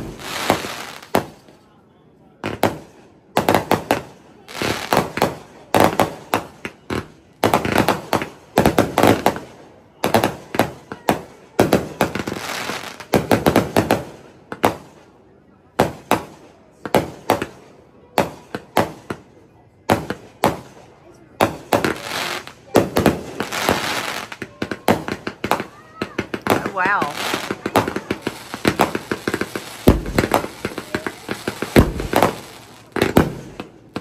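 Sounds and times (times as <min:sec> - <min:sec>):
fireworks cracking and popping: 0:00.0 - 0:01.6, 0:02.4 - 0:15.0, 0:19.9 - 0:34.0
fireworks hissing crackle: 0:00.0 - 0:01.6, 0:21.5 - 0:34.0.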